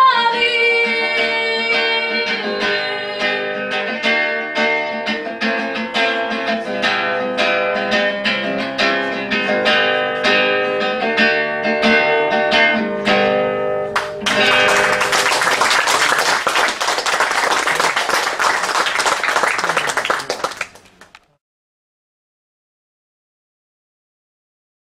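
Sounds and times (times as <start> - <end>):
fingerpicked acoustic guitar: 0.1 - 15.1.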